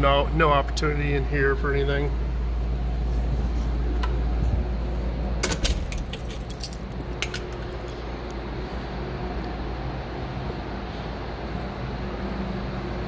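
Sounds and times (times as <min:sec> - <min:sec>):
low equipment hum: 0:00.0 - 0:13.0
keys jangling: 0:05.4 - 0:08.0.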